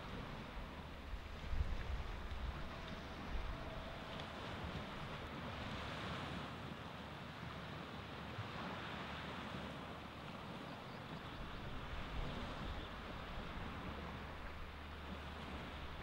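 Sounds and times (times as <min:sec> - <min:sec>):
surf washing onto beach: 0:00.0 - 0:10.4.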